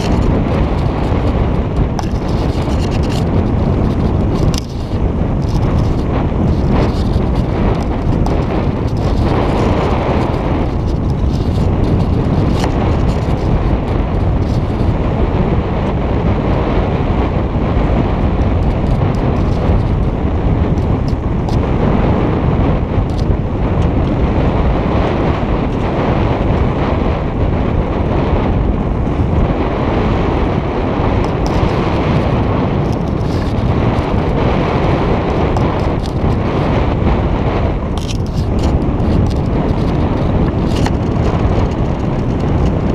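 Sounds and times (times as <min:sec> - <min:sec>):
wind buffeting microphone: 0:00.0 - 0:42.9.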